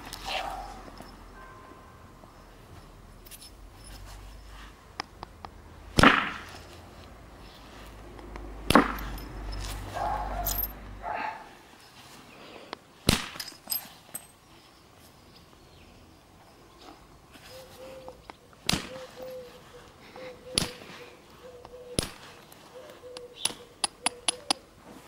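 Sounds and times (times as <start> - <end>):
sharp strikes on flint: 6.0 - 6.5, 8.7 - 9.2, 18.6 - 19.1, 20.6 - 20.8, 22.0 - 22.2.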